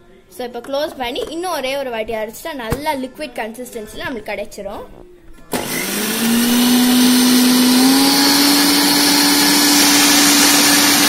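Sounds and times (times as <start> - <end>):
mixer grinder motor whine: 5.5 - 11.0.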